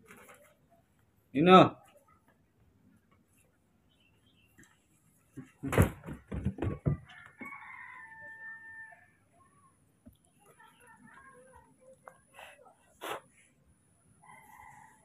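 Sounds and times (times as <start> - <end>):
loud knocks: 5.6 - 7.1
rooster crowing: 7.0 - 9.2, 14.2 - 15.0.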